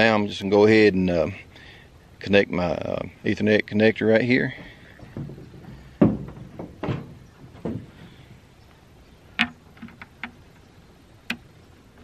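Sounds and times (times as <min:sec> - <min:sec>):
rustles and bumps: 0:04.2 - 0:10.6.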